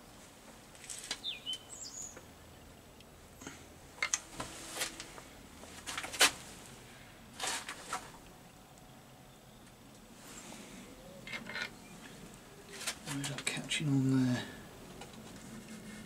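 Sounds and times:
metal clicks and knocks: 4.0 - 4.3.

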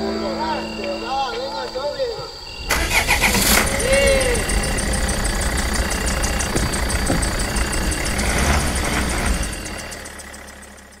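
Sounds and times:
van engine driving off: 2.6 - 11.0.

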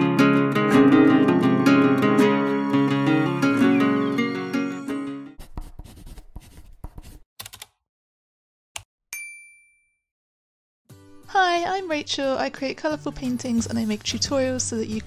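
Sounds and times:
guitar music: 0.0 - 5.4
bright ding: 9.2 - 10.0.

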